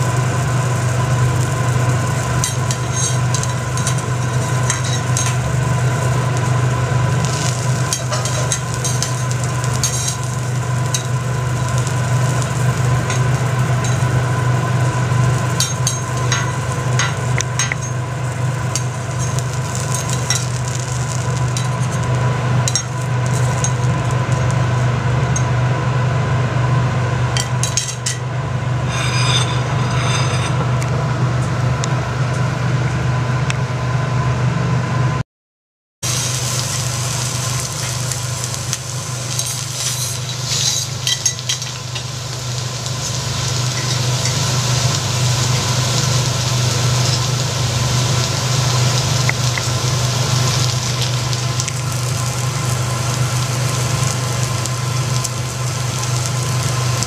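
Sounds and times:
steady low hum: 0.0 - 35.2, 36.1 - 57.0
metal spatulas scraping on griddle: 2.4 - 5.5, 7.3 - 10.3, 28.8 - 30.9, 39.3 - 42.0, 43.5 - 44.4.

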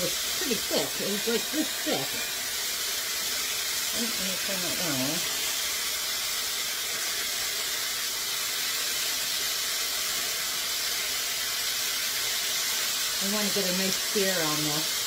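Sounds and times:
steak sizzling in a frying pan: 0.0 - 15.0.

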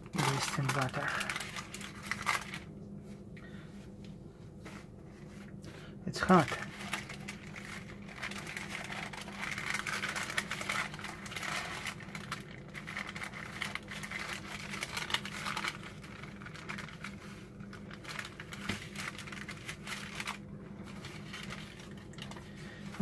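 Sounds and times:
paper napkin rustling and crinkling: 0.1 - 3.2, 6.2 - 23.0.

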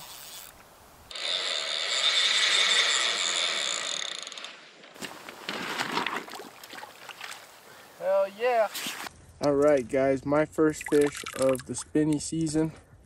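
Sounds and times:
fly reel whirring: 0.0 - 4.6.

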